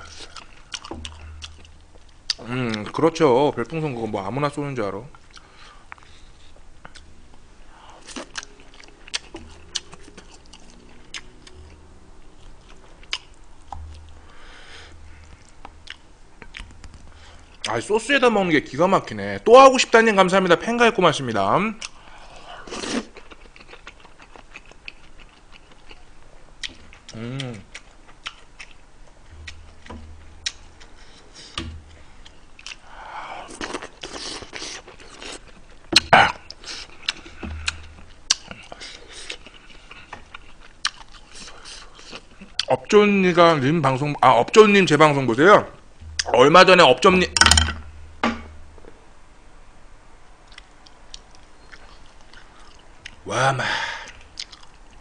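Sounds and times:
man chewing food: 0.0s - 2.8s, 5.1s - 7.1s, 7.9s - 17.7s, 21.8s - 42.7s, 50.4s - 53.2s, 54.0s - 55.0s.

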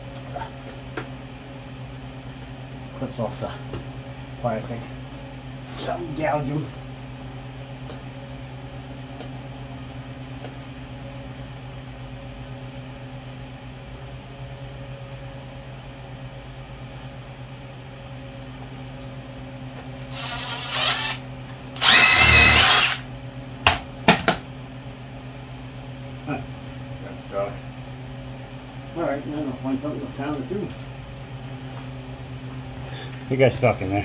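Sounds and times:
power tool motor whirring: 20.1s - 21.2s, 21.8s - 23.0s.

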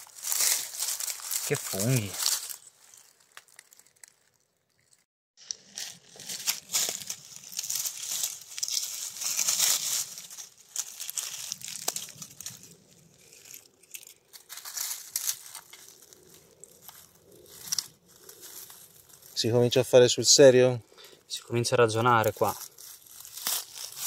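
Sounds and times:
dry leaves crackling and rustling: 0.0s - 20.5s, 21.5s - 24.0s.

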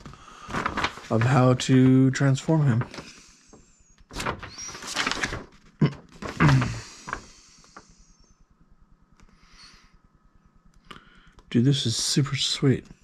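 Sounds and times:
packaging rustling and scraping: 0.0s - 1.4s, 4.1s - 7.3s.

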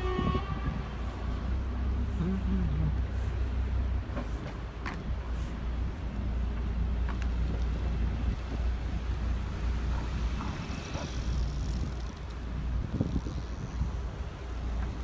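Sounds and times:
wind buffeting microphone: 0.0s - 1.7s, 3.7s - 15.0s
boat engine rumbling: 0.0s - 15.0s.

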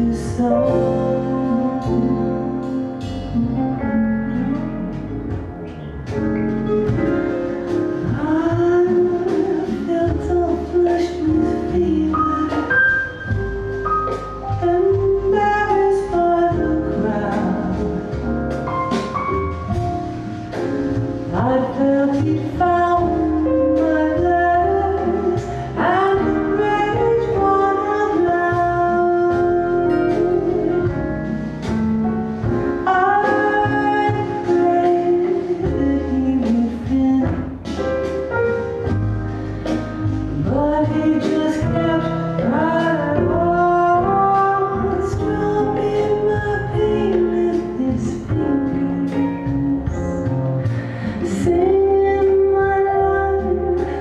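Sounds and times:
person singing: 21.4s - 31.2s, 32.8s - 37.6s.

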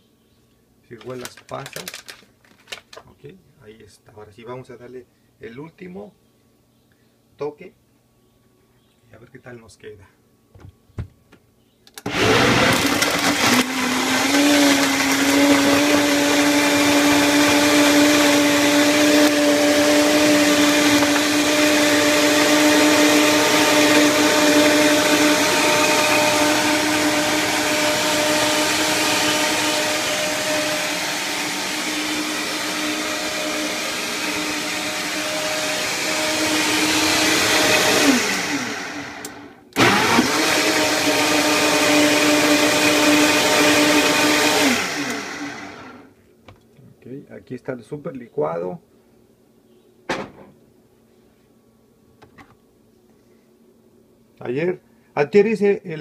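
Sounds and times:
blender motor running: 12.1s - 46.0s.

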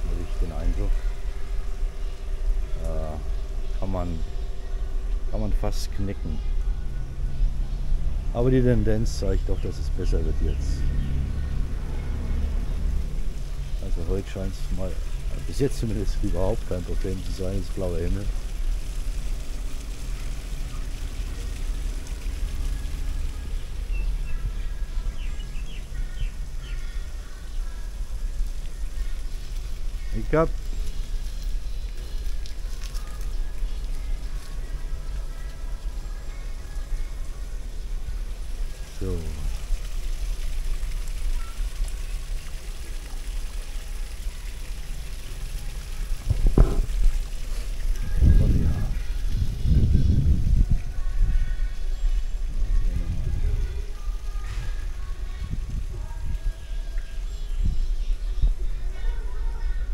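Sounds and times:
birds chirping: 0.0s - 39.6s
travel noise: 0.0s - 39.9s, 44.1s - 59.9s
low rumble of wind: 0.0s - 59.9s
wind rumble on microphone: 46.0s - 59.9s.

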